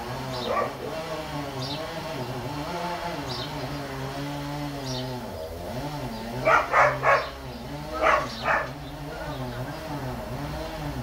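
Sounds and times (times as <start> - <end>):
dog barking: 0.5 - 0.9, 6.4 - 8.8.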